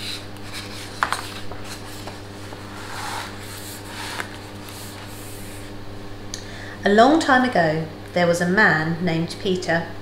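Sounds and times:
book pages rustling: 0.0s - 5.7s.

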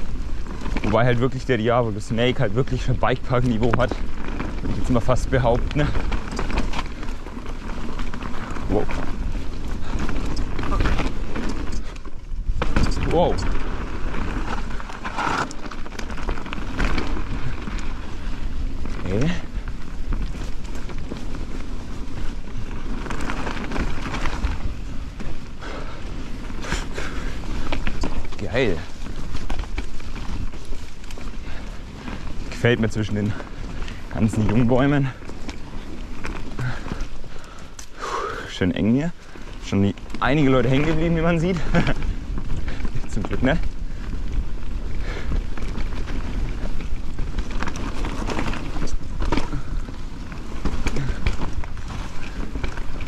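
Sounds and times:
wind rumble on microphone: 0.0s - 37.9s
bike rattling and knocking: 0.0s - 53.0s
bike tyres rolling over dirt: 0.0s - 53.0s.

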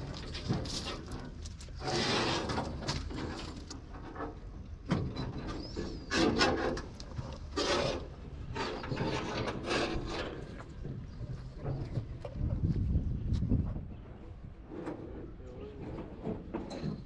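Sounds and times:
rough scraping rasps: 0.2s - 4.4s, 5.7s - 10.9s.

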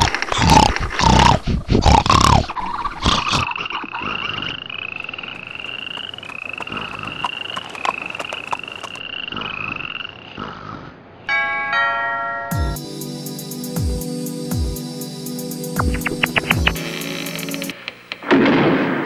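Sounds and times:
frogs trilling: 0.0s - 10.9s
chiming bell-like tone: 11.3s - 12.8s
sharp clicks: 15.8s - 18.4s.

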